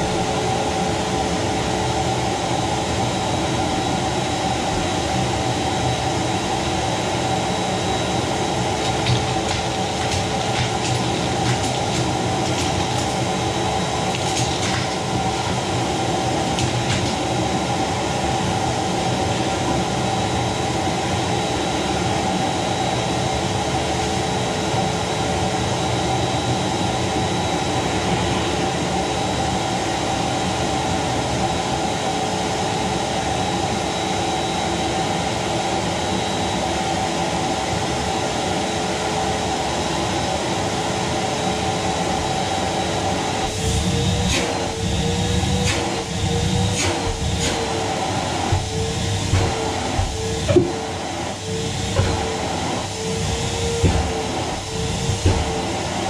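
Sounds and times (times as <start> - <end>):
vacuum cleaner running: 0.0 - 56.0.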